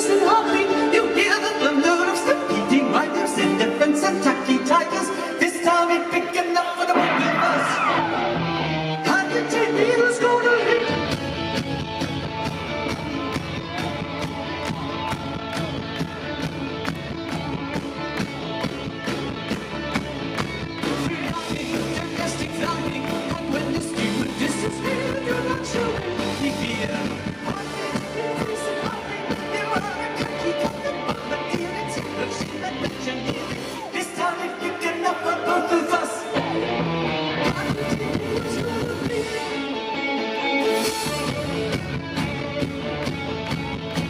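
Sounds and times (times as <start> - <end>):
male lead vocal: 0.0 - 43.0
electric guitar: 0.0 - 44.0
drums steady beat: 11.1 - 33.9.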